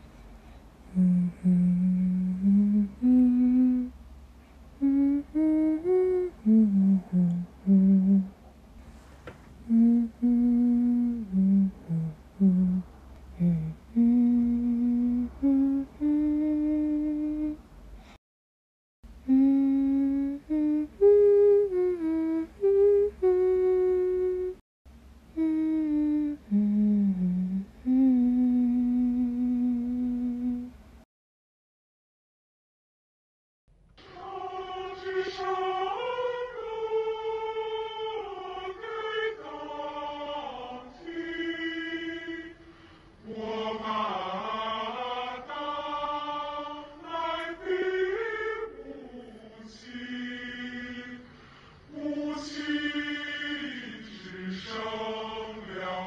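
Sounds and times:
person humming a melody: 0.9s - 4.0s, 4.8s - 8.4s, 9.6s - 17.6s, 19.2s - 24.6s, 25.3s - 30.9s.

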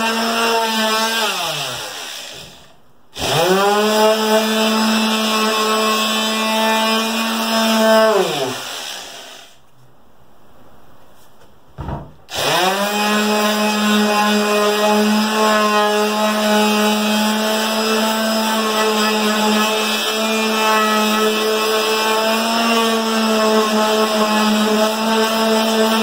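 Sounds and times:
knock: 11.8s - 12.2s
palm sander sanding wood: 12.3s - 26.0s.

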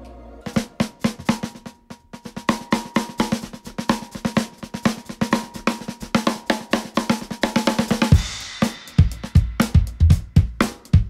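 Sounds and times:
cymbal crash: 0.0s - 1.7s
snare drum strokes and rolls: 0.0s - 11.0s
bass drum: 7.9s - 11.0s.

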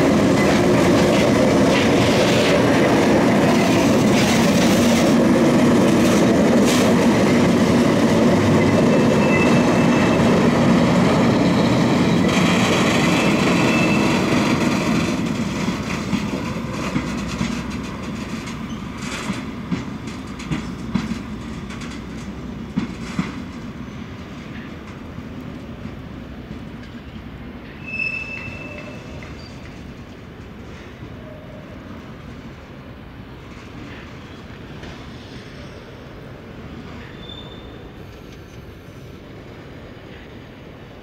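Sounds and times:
train wheel clacks: 0.0s - 27.0s
freight train rolling past: 0.0s - 41.0s
train wheel squeal: 8.4s - 10.6s, 11.2s - 14.9s, 18.5s - 19.3s, 27.7s - 29.8s, 33.8s - 36.1s, 36.8s - 39.2s.

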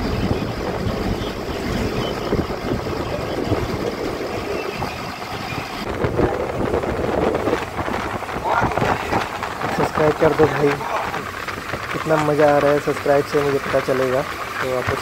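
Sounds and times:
bus engine drone: 0.0s - 15.0s
tyre and wind noise: 0.0s - 15.0s.

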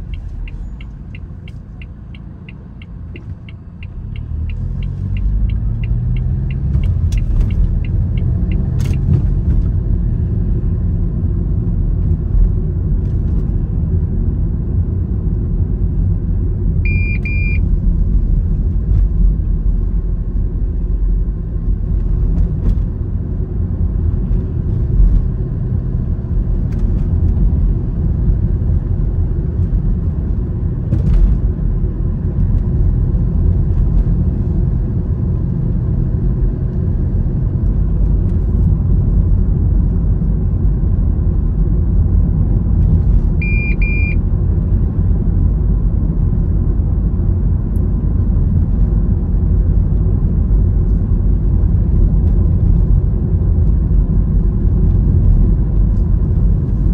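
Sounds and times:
vehicle road and engine rumble: 0.0s - 56.9s
short high electronic beep: 16.9s - 17.6s, 43.4s - 44.2s.

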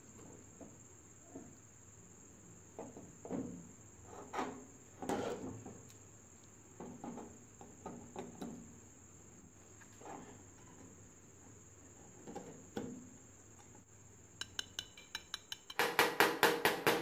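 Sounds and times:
metal knocks and scrapes on concrete: 4.1s - 5.8s, 14.4s - 17.0s.

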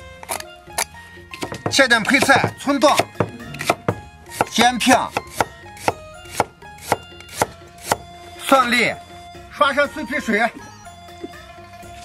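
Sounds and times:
cleaver chopping on wooden board: 1.3s - 8.1s.

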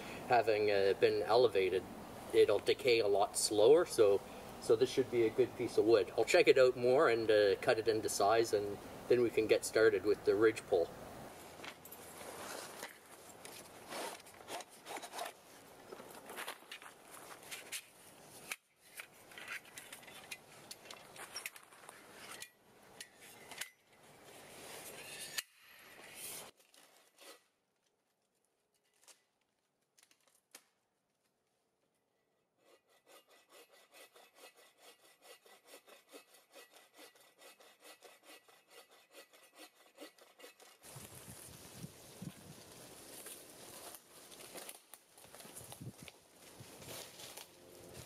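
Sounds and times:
rustling: 11.3s - 22.5s, 40.6s - 48.0s
hand saw cutting wood: 12.3s - 15.4s, 32.6s - 41.0s.

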